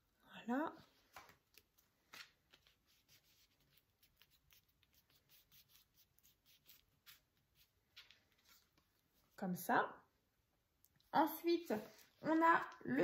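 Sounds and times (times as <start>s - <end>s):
paper card rustling: 1.0s - 9.2s.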